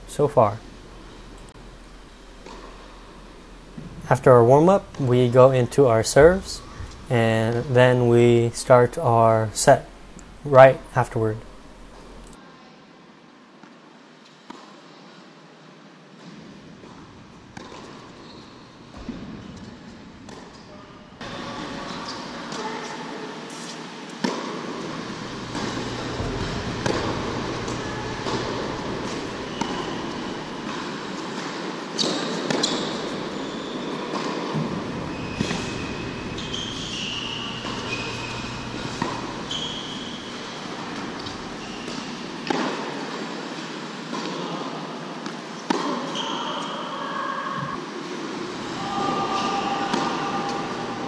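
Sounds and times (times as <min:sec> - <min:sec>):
tennis balls bouncing on court: 0:01.0 - 0:04.0, 0:16.2 - 0:22.6, 0:24.2 - 0:44.4, 0:45.2 - 0:46.3, 0:49.9 - 0:50.9
tennis balls struck by rackets: 0:01.2 - 0:04.0, 0:16.2 - 0:18.1, 0:24.2 - 0:33.4, 0:34.1 - 0:43.3, 0:45.2 - 0:46.2, 0:49.9 - 0:51.0
shoe squeaks on court: 0:17.6 - 0:19.7, 0:25.3 - 0:30.6, 0:32.0 - 0:34.2, 0:35.0 - 0:42.2, 0:46.0 - 0:47.0.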